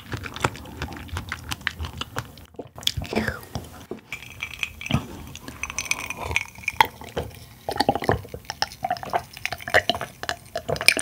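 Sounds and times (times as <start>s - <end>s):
person gulping a drink: 2.5s - 11.0s.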